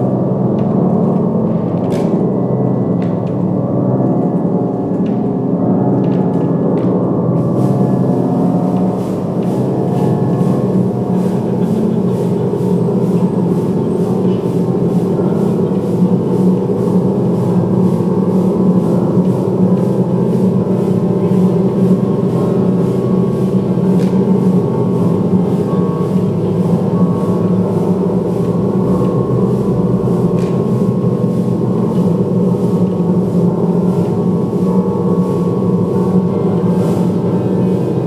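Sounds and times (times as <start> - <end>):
gong-like drone: 0.0 - 38.0.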